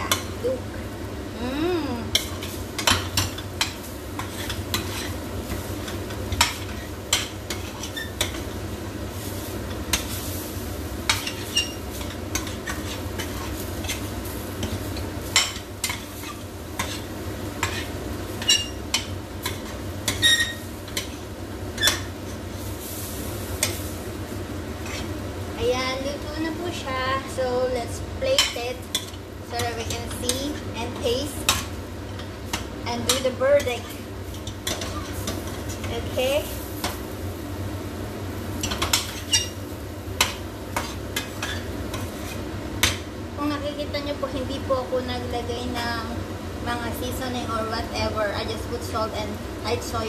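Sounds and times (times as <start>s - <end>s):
food sizzling: 0.0s - 50.0s
metal spoon scraping pan: 2.1s - 5.2s, 5.8s - 8.4s, 15.4s - 21.2s, 24.8s - 25.1s.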